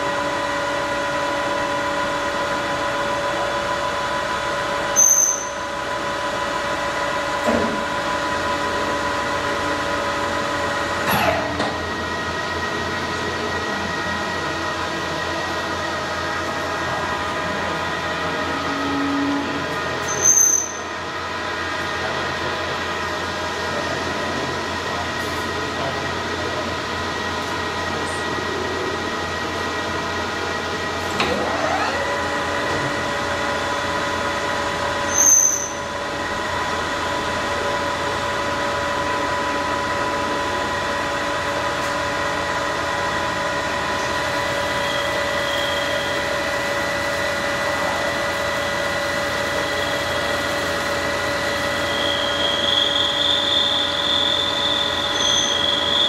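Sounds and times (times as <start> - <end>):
lathe gear whine: 0.0 - 56.0
high squeal of tool cutting: 4.9 - 5.7, 18.7 - 20.9, 35.1 - 35.8, 44.6 - 46.3, 49.6 - 50.4, 51.6 - 56.0.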